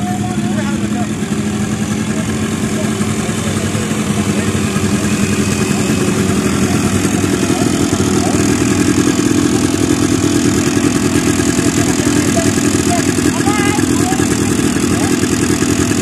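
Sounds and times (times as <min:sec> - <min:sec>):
quad bike engine idling: 0:00.0 - 0:16.0.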